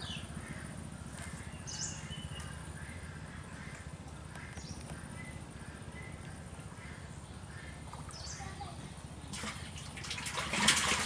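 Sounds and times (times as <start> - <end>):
low throbbing engine hum: 0.0 - 11.0.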